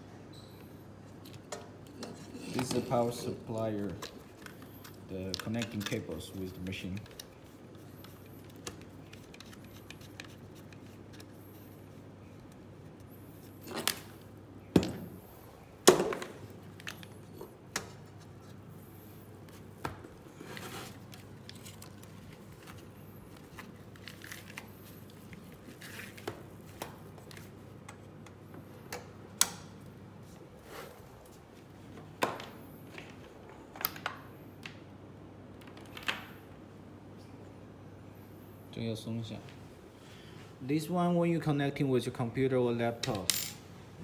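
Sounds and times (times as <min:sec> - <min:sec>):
faint steady hum: 0:00.0 - 0:44.0
connectors clicking and knocking: 0:01.2 - 0:11.6.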